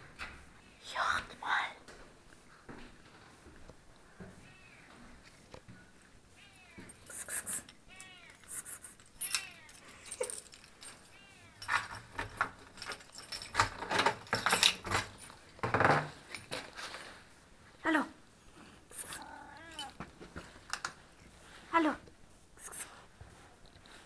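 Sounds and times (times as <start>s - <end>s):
cat meowing: 4.4s - 5.0s, 6.3s - 10.0s, 11.0s - 11.8s, 18.9s - 20.0s
keys jangling in door lock: 6.9s - 17.0s, 19.0s - 20.0s.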